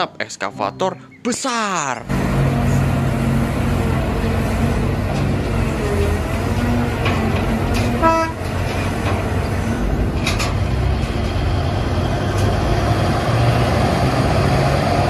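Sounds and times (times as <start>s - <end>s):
heavy diesel machinery running: 2.0s - 15.0s
short horn toot: 8.0s - 8.6s.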